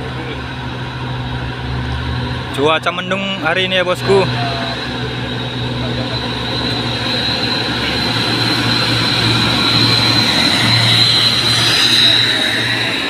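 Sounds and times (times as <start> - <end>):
steady high whine: 0.0 - 13.0
trucks and car passing: 0.0 - 13.0.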